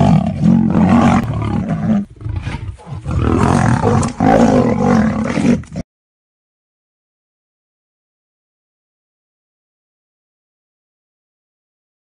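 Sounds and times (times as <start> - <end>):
big cat roaring: 0.0 - 5.8.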